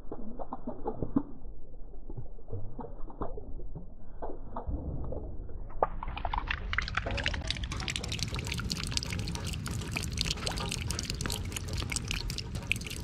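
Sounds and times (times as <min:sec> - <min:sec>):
drips splashing into puddle: 0:00.0 - 0:03.8, 0:05.8 - 0:13.0
water drops pattering on leaves: 0:05.8 - 0:13.0.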